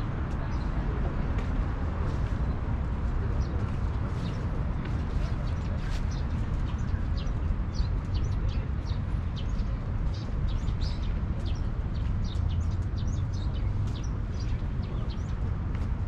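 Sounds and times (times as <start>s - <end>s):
small birds chirping: 3.4s - 16.0s.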